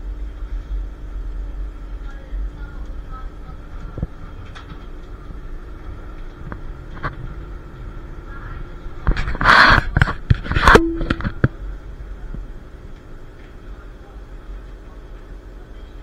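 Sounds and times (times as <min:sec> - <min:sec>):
tram rumbling: 0:00.0 - 0:16.0
brief tone: 0:10.7 - 0:11.4.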